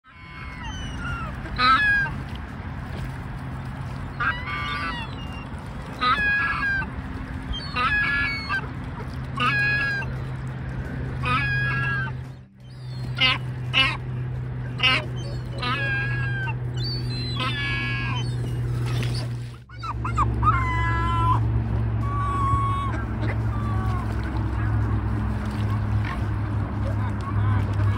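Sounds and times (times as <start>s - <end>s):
gull calling: 0.1s - 2.2s, 4.1s - 6.9s, 7.5s - 8.8s, 9.4s - 10.2s, 11.2s - 26.3s
steady low hum: 1.0s - 27.9s.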